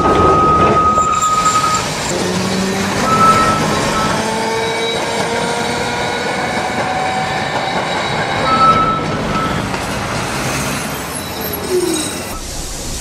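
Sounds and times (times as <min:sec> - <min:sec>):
tram running on rails: 0:00.0 - 0:13.0
brief high tone: 0:03.0 - 0:04.3, 0:08.5 - 0:09.6.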